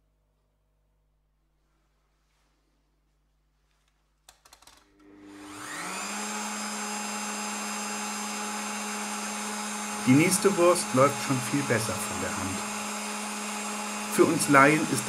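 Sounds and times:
meat grinder motor humming: 5.0 - 15.0.

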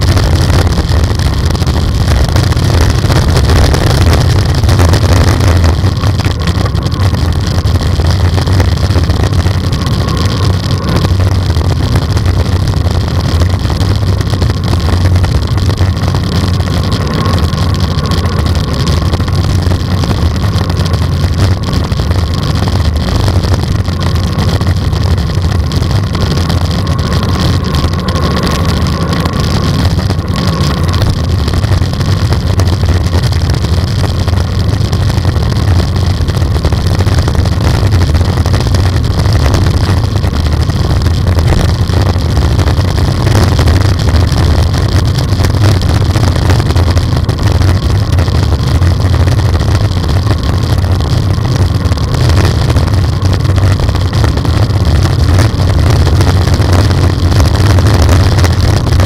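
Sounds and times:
wind buffeting microphone: 0.0 - 59.0.

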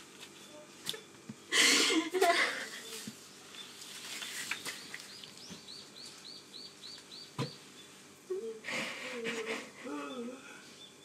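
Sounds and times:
bird chirping: 3.3 - 8.0.

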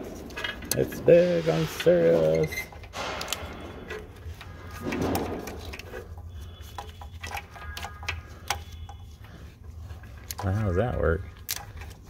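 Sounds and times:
gloves rustling: 0.0 - 12.0
small clicks and knocks: 2.6 - 12.0.

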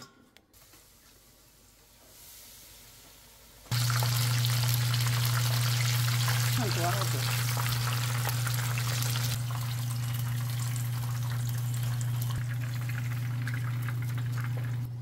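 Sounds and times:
crab deep-frying in oil: 1.2 - 14.9.

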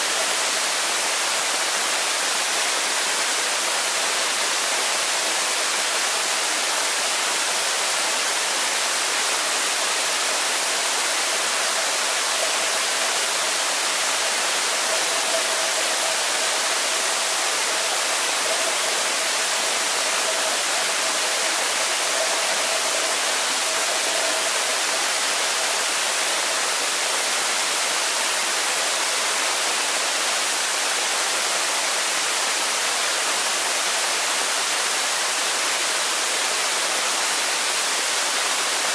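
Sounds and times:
faint steady mid tone: 0.0 - 38.8.

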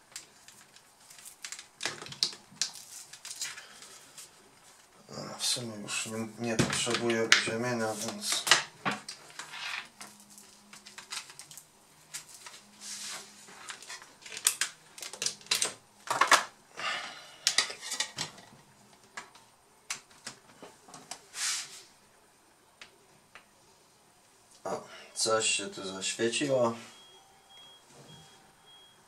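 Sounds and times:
cable handling clicks and rustles: 0.0 - 4.9, 6.6 - 12.7, 13.5 - 16.5, 17.4 - 21.2.

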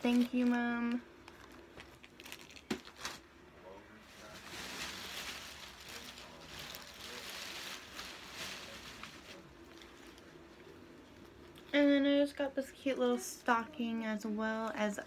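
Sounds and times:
paper or fabric rustling: 4.0 - 10.4.

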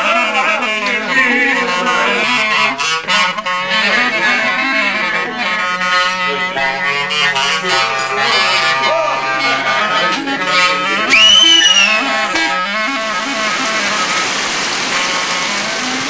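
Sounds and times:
clarinet folk melody: 0.0 - 16.0
low held drone note: 1.3 - 16.0.

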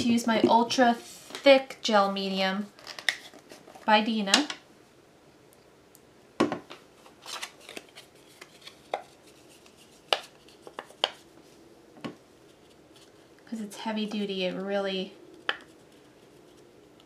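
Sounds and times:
soft paper rustling: 7.0 - 11.7, 12.3 - 13.4, 14.6 - 17.0.

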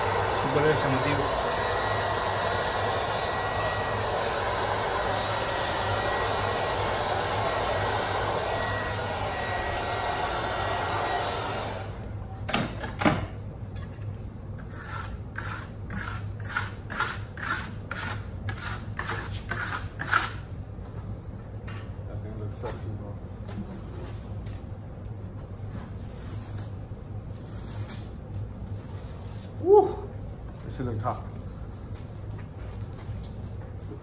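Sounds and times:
hair dryer blowing: 0.0 - 12.1
hand tool scraping plaster: 14.6 - 20.4.

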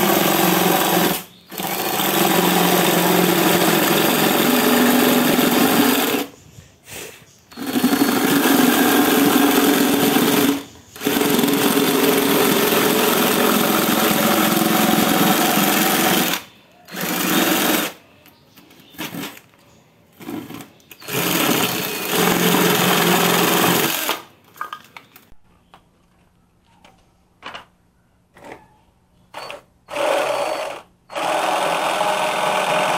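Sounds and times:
jigsaw blade sawing wood: 0.0 - 6.3, 7.5 - 17.9, 29.9 - 32.9.

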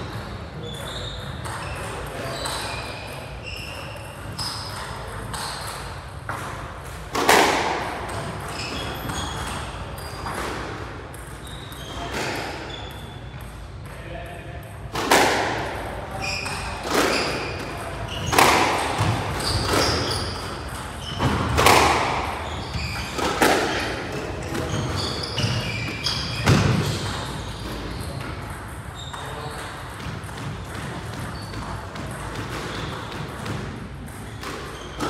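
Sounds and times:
shoe squeaks on wooden floor: 0.6 - 6.0, 8.1 - 10.6, 11.2 - 13.4, 16.1 - 35.0
squash ball cracking off rackets: 4.3 - 11.4, 16.4 - 28.8.

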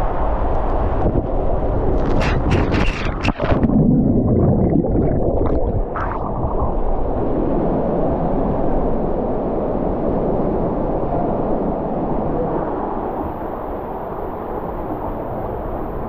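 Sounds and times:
water rushing down a slide: 1.9 - 8.2.

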